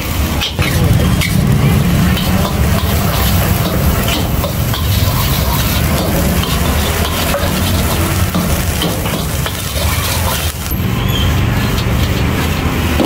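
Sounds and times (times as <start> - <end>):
food sizzling: 0.0 - 13.0
metal spatula scraping a wok: 0.2 - 13.0
steady low rumble: 0.6 - 9.6.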